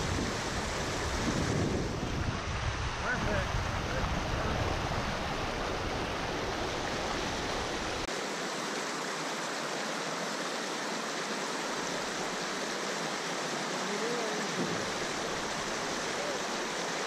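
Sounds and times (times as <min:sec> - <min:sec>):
rapids rushing over rocks: 0:00.0 - 0:17.0.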